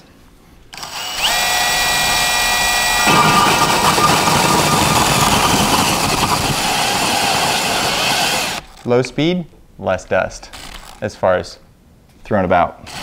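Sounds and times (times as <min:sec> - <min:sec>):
drill motor whine: 0:00.8 - 0:08.6
hole saw cutting into wall: 0:00.8 - 0:08.7.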